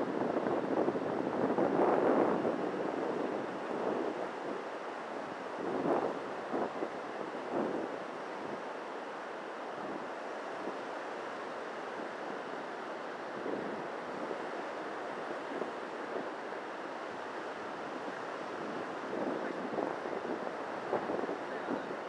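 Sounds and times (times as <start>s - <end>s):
wind buffeting microphone: 0.0s - 4.7s, 5.6s - 8.6s, 17.8s - 22.0s
surf breaking on beach: 9.7s - 22.0s.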